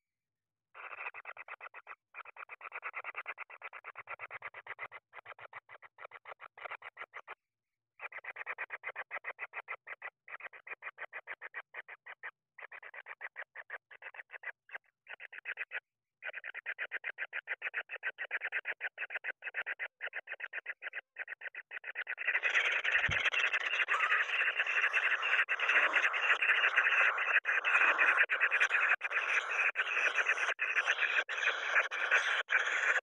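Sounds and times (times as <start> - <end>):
kingfisher chicks churring: 17.6 - 33.0.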